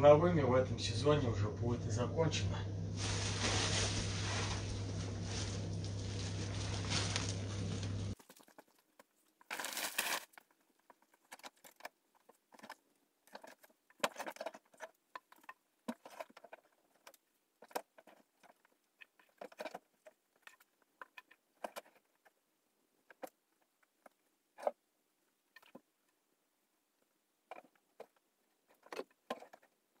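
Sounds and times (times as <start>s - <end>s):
rustles: 3.0s - 22.4s
small knocks: 27.4s - 30.0s.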